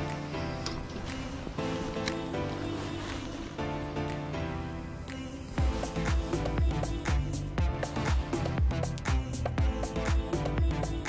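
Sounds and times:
background music with chords: 0:00.0 - 0:11.0
steady beat: 0:05.1 - 0:11.0.

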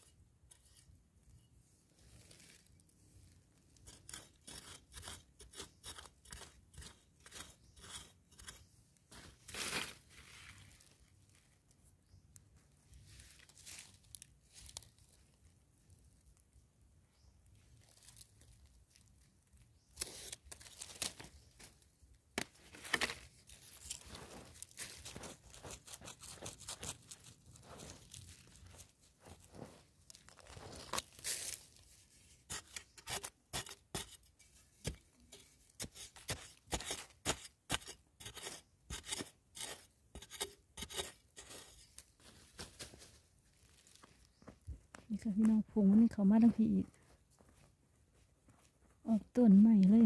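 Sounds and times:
spade chopping into dry soil: 0:32.5 - 0:34.2, 0:34.8 - 0:41.7.

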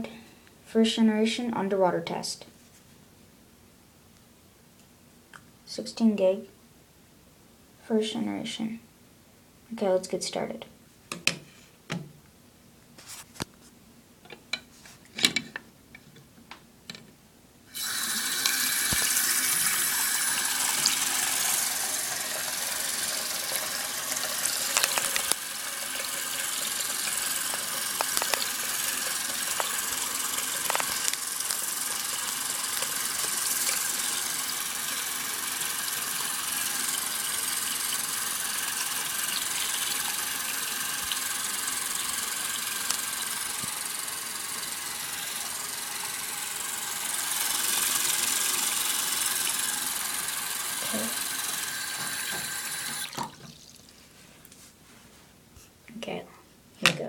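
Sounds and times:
water running from tap into sink: 0:17.8 - 0:53.9.

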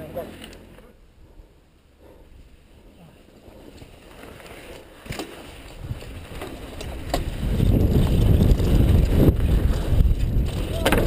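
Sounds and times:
bike tyre rumble on dirt: 0:02.4 - 0:11.0
bike clicks and rattles: 0:03.3 - 0:11.0
wind on microphone: 0:05.7 - 0:11.0.

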